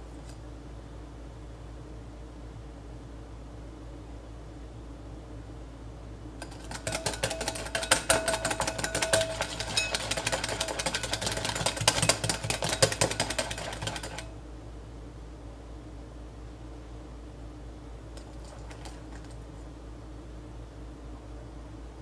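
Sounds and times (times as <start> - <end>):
whisk clicking against glass bowl: 6.4 - 14.4
bowl ringing faintly: 6.8 - 11.5.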